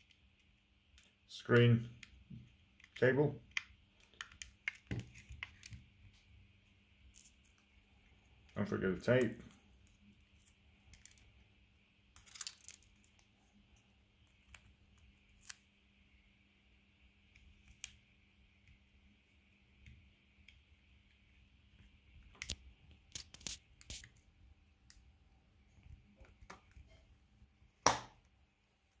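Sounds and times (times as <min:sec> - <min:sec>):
light rustles of tape: 0:22.3 - 0:24.3.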